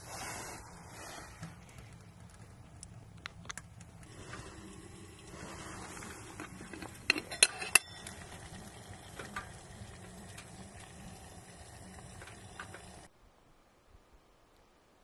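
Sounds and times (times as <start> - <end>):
steaming water hiss: 0.0 - 1.6, 4.0 - 13.1
metal lid clinking: 6.4 - 10.5.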